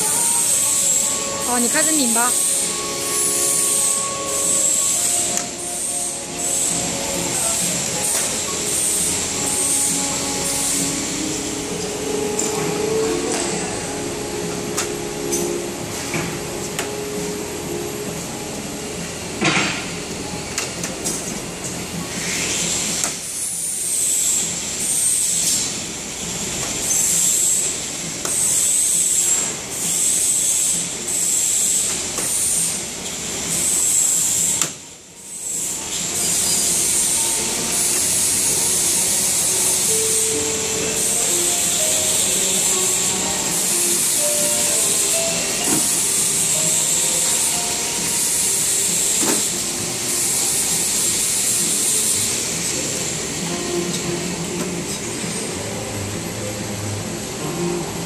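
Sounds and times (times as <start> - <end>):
conveyor and sealer running: 0.0 - 58.0
high-pitched whine: 0.0 - 58.0.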